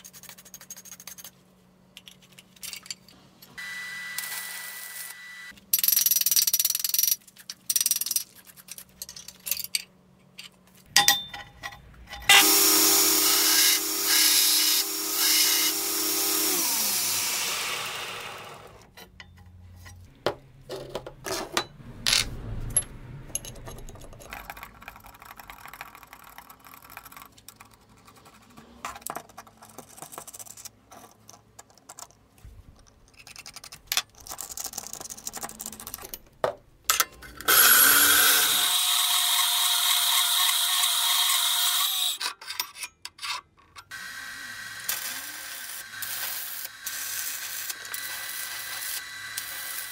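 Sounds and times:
metal parts clicking and tapping: 0:00.1 - 0:03.5, 0:05.6 - 0:12.4, 0:23.4 - 0:37.6
power tool grinding: 0:12.3 - 0:18.9, 0:37.5 - 0:42.2, 0:43.9 - 0:49.9.

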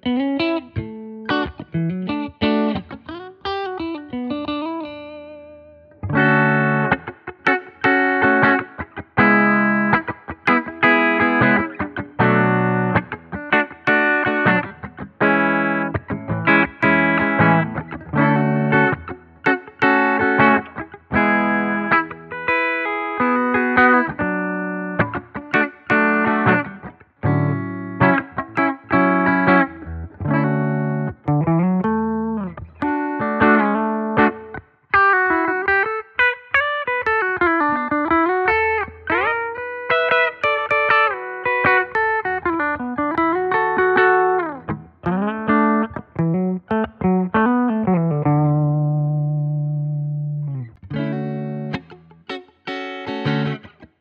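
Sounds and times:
clean electric guitar chords: 0:00.0 - 0:54.0
electric guitar lead with bends: 0:00.0 - 0:54.0.

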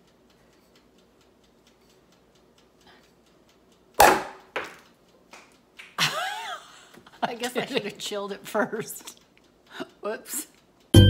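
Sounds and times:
champagne cork popping: 0:04.0 - 0:04.8.

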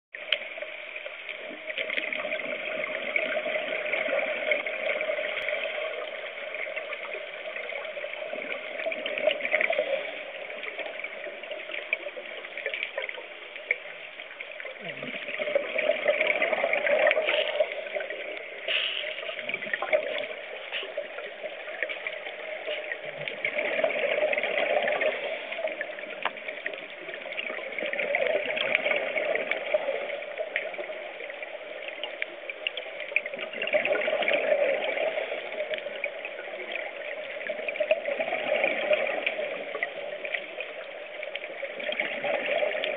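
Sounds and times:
underwater regulator breathing bubbles: 0:18.6 - 0:21.2.

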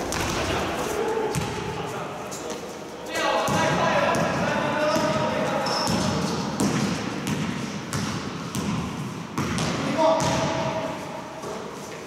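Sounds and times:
basketball bouncing on gym floor: 0:01.3 - 0:01.6, 0:05.8 - 0:10.8.

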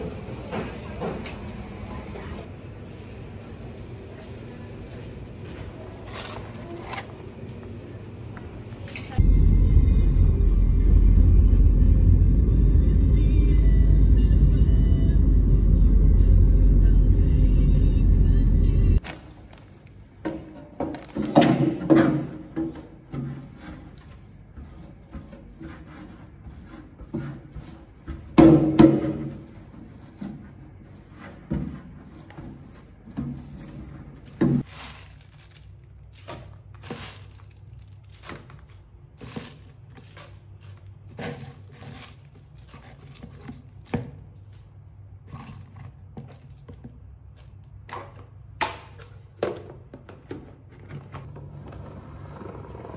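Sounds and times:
containers thunking on tiled floor: 0:20.2 - 0:23.4, 0:28.4 - 0:29.5, 0:47.8 - 0:51.3
leaves clicking and rustling: 0:20.8 - 0:21.4, 0:34.2 - 0:40.9.

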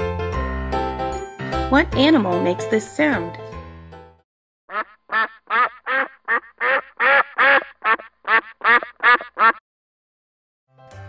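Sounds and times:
duck quacking: 0:04.7 - 0:09.6.

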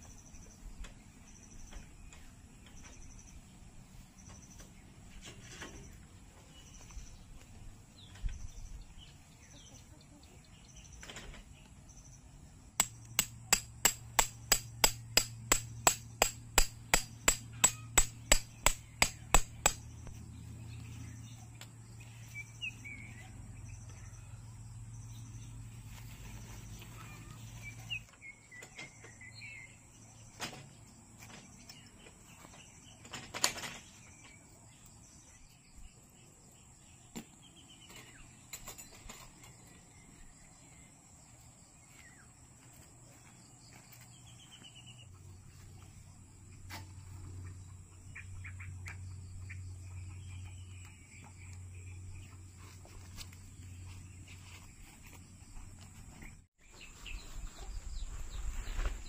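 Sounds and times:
birds chirping faintly: 0:00.0 - 0:59.0
sharp knocks: 0:12.8 - 0:20.0.

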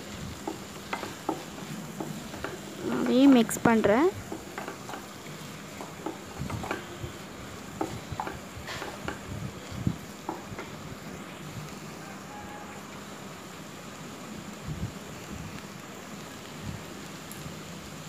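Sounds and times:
vegetables sizzling: 0:00.0 - 0:18.0.

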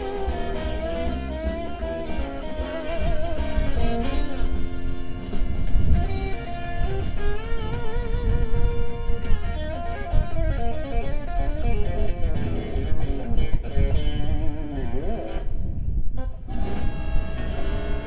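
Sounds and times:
blues band playing: 0:00.0 - 0:15.5, 0:16.2 - 0:18.0
lead guitar bending notes: 0:00.0 - 0:15.6, 0:16.2 - 0:18.0.

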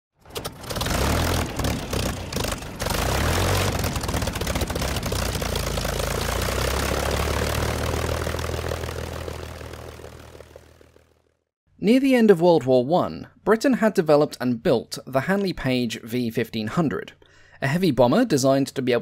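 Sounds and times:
propeller aircraft engine running: 0:00.1 - 0:11.5.

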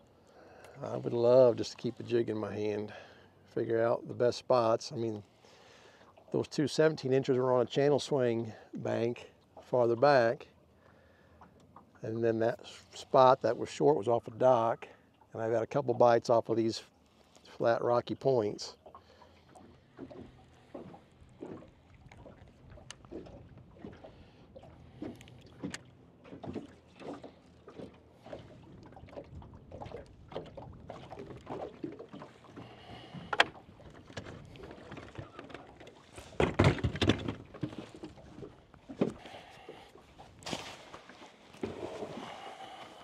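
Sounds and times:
small waves slapping a hull: 0:00.2 - 0:43.0
thumps and rustling: 0:36.2 - 0:38.2.

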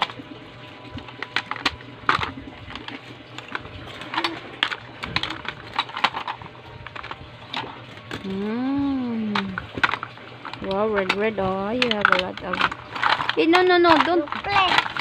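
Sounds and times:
plastic toy pieces clicking: 0:01.2 - 0:07.2, 0:09.4 - 0:15.0.

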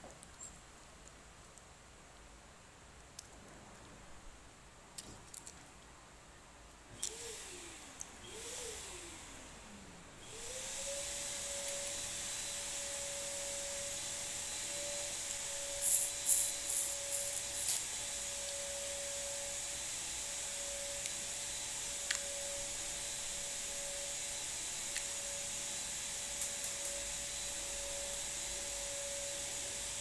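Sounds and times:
small motor whining: 0:07.0 - 0:19.7
hiss: 0:07.0 - 0:30.0.

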